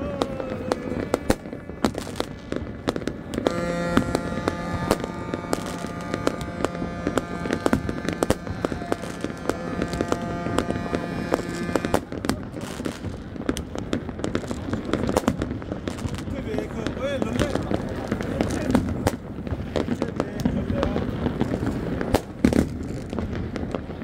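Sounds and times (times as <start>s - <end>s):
fireworks bangs and crackling: 0.0s - 24.0s
steady droning tone: 3.4s - 12.0s.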